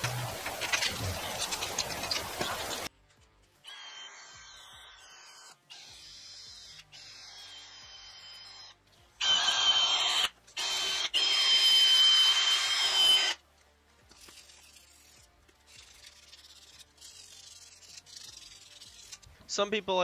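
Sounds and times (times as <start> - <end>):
drill wire brush scraping metal: 14.2 - 19.3.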